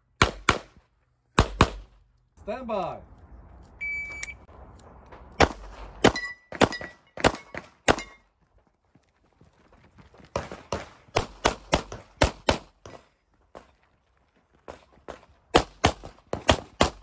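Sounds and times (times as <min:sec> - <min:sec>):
pistol shots: 0:01.4 - 0:01.9, 0:05.4 - 0:08.2, 0:10.7 - 0:12.8, 0:15.5 - 0:17.0.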